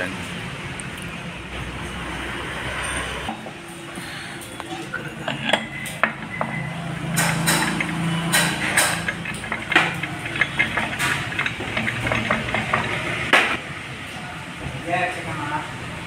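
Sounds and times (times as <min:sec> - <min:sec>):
metal clinks and knocks: 0:04.4 - 0:13.6.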